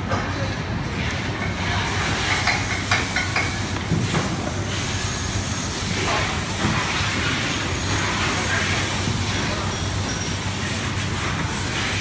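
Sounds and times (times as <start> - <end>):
low electrical hum: 0.0 - 12.0
workshop hissing noise: 0.0 - 12.0.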